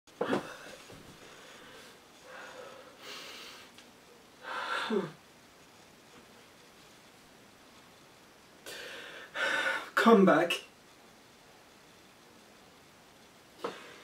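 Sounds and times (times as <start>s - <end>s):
man breathing heavily: 0.2s - 3.8s, 4.4s - 5.2s, 8.6s - 10.0s.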